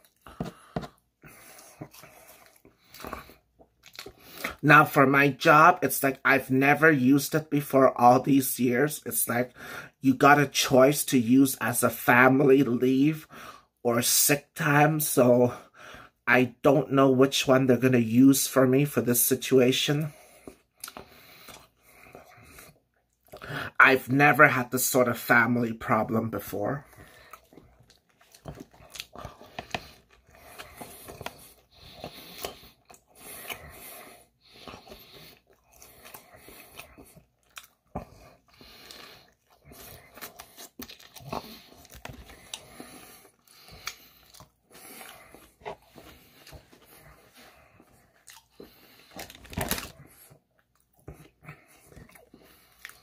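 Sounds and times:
chewing burger: 0.0 - 4.6, 20.0 - 23.8, 26.0 - 53.0
paper wrapper rustling: 49.1 - 50.0.

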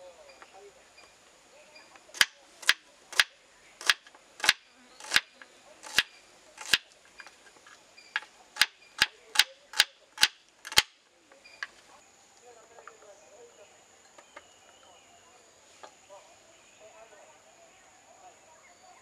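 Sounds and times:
knife striking wooden cutting board: 2.2 - 6.9, 8.2 - 10.9.

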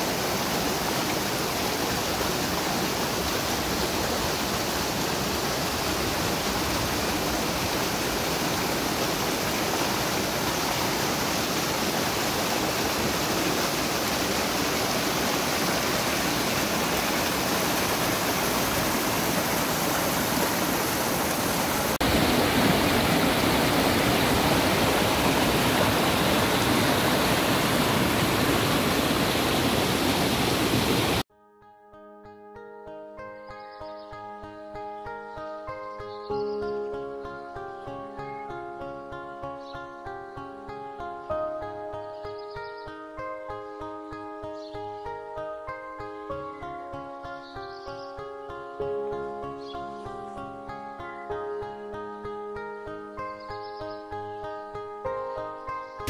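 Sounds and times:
stream rushing over rocks: 0.0 - 31.3.

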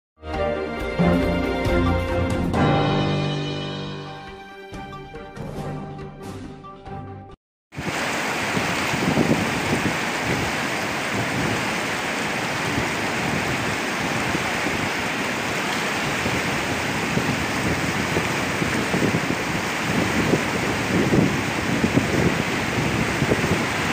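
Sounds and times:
river whitewater rushing: 7.8 - 23.9.

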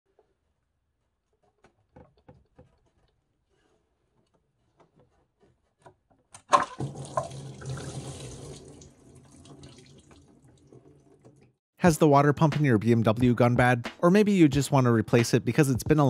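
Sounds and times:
coolant gushing and splashing: 6.5 - 11.6.

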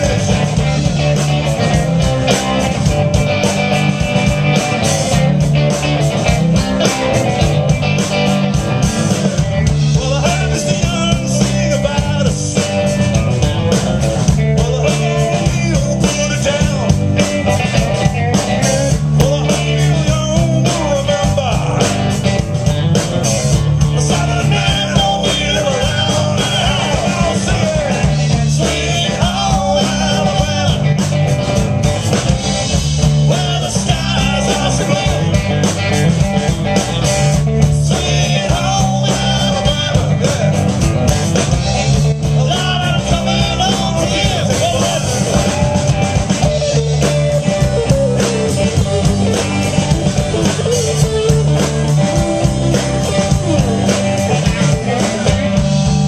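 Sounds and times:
bass guitar: 0.0 - 56.0
drum kit: 0.0 - 56.0
electric guitars: 0.0 - 56.0.

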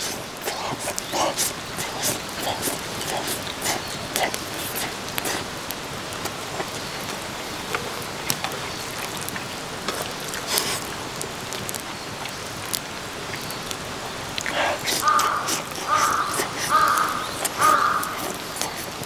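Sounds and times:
person slurping spaghetti: 0.0 - 5.6, 14.4 - 19.0
wood fire crackling: 0.0 - 19.0.

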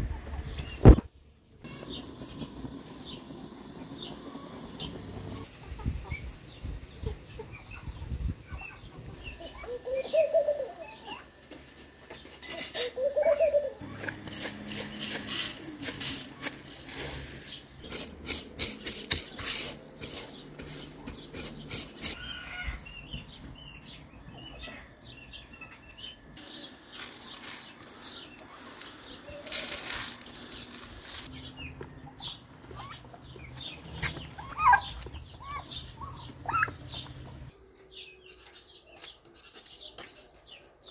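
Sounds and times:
small birds chirping: 1.6 - 11.3, 12.1 - 40.9
turkeys calling: 8.6 - 11.3, 12.4 - 22.8, 26.5 - 37.5
rice grains rustling on metal tray: 13.9 - 22.2, 26.5 - 31.3.

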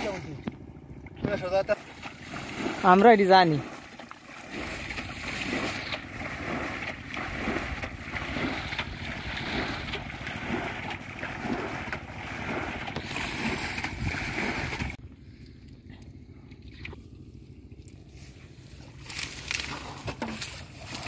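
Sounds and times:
water splashing from bailing: 0.0 - 18.1
metal bowl scooping water: 1.8 - 17.2.

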